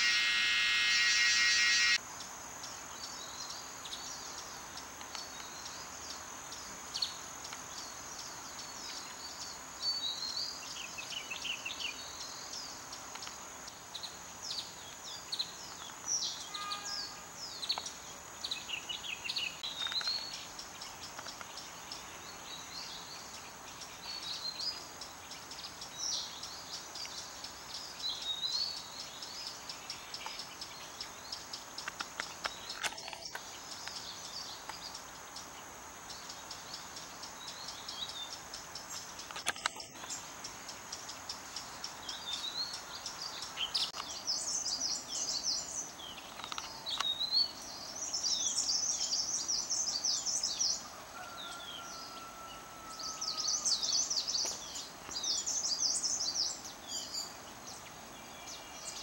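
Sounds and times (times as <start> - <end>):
high-pitched insect drone: 0.0 - 2.1
songbirds chirping: 0.0 - 59.0.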